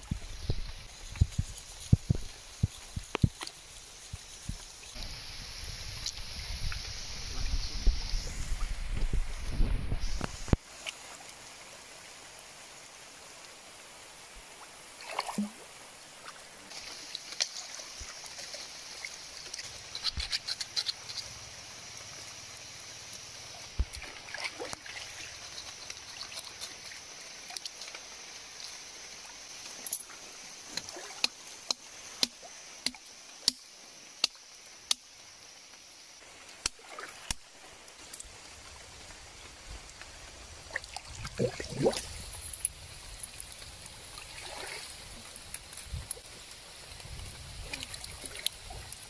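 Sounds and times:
stream water trickling: 0:00.0 - 0:49.0
knife scraping carcass: 0:19.8 - 0:21.3
carcass splashing in water: 0:40.7 - 0:42.2.

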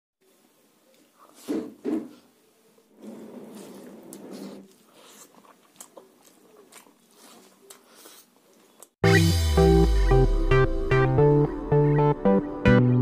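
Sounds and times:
soft chewing: 0:00.2 - 0:01.5, 0:02.1 - 0:09.0
wet squishing of food by hand: 0:02.9 - 0:09.0
lip clicks: 0:03.8 - 0:09.0.

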